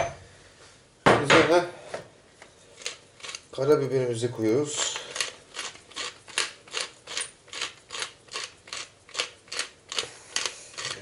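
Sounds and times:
pepper mill grinding: 2.8s - 3.7s, 4.7s - 11.0s.

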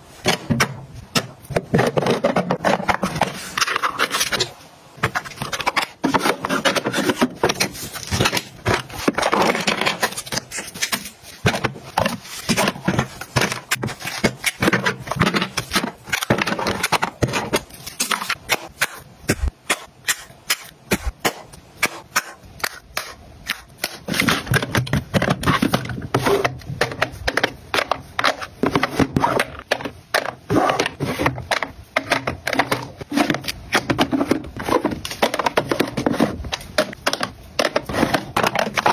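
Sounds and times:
plastic cases clicking and tapping: 0.2s - 38.9s.

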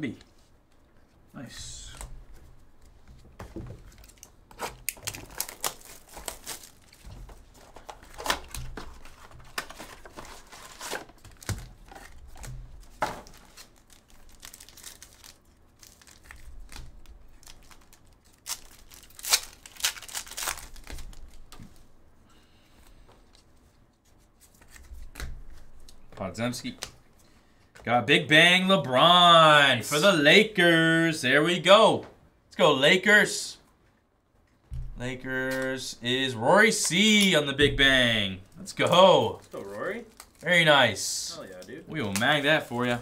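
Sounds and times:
foil pack ripping and crinkling: 4.0s - 21.5s, 39.4s - 40.5s.

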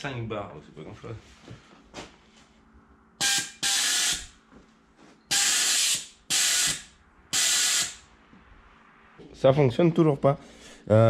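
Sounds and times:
pressurised gas hissing bursts: 5.3s - 8.1s.

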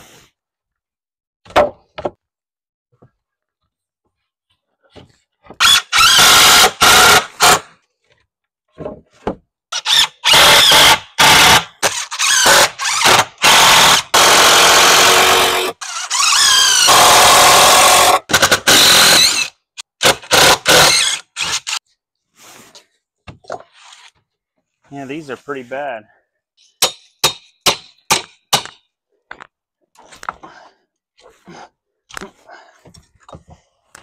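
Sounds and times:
nails squealing: 15.8s - 16.9s, 20.6s - 21.8s.

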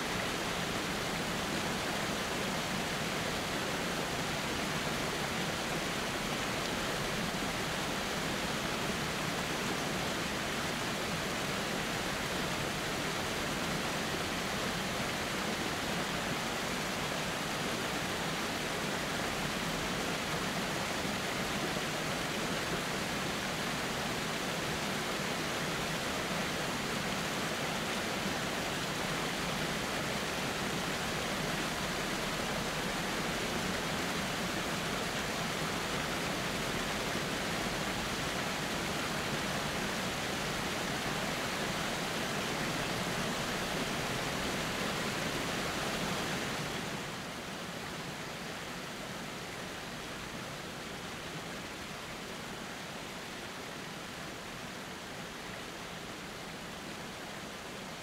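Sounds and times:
waterfall rushing: 0.0s - 58.0s.

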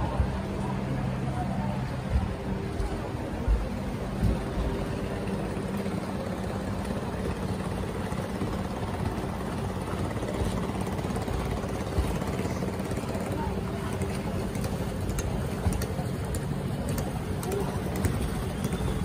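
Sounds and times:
boat engine hum: 0.0s - 19.0s
rain over water: 4.0s - 19.0s.

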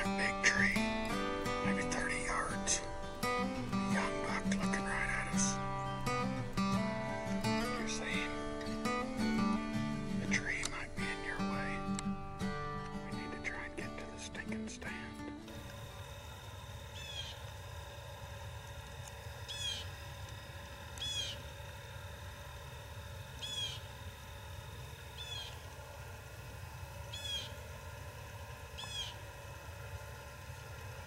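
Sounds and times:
low steady rumble: 0.0s - 31.0s
bird chirping: 19.5s - 19.9s, 23.4s - 23.9s, 25.2s - 25.6s, 27.1s - 27.6s, 28.8s - 29.2s.

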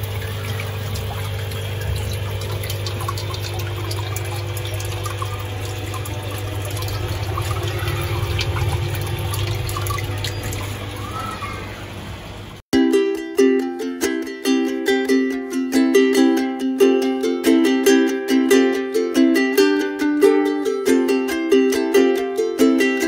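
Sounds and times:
water splashing over rocks: 0.0s - 11.2s
steady low hum: 0.0s - 12.6s
ukulele music: 12.7s - 23.0s.

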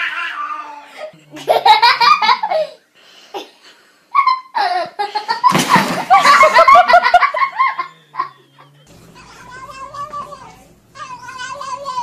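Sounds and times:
people laughing: 1.3s - 2.7s, 4.6s - 9.4s.

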